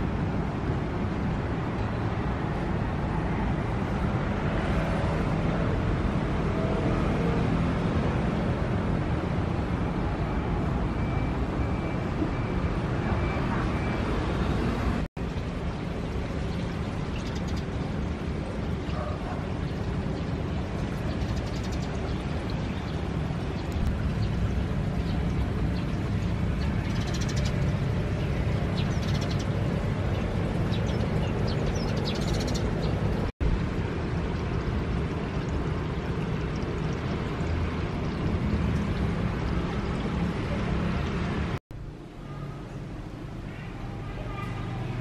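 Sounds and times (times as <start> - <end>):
low outdoor rumble: 14.8 - 45.0.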